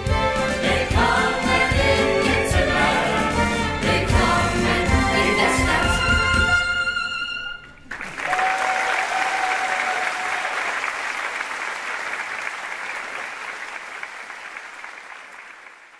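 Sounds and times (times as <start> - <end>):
audience applauding: 7.6 - 15.9.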